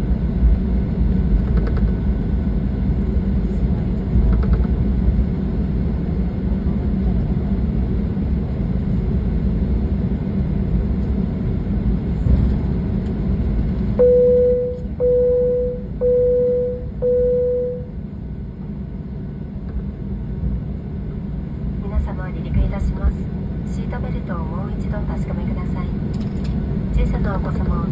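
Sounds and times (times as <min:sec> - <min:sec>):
aircraft engine rumble: 0:00.0 - 0:27.9.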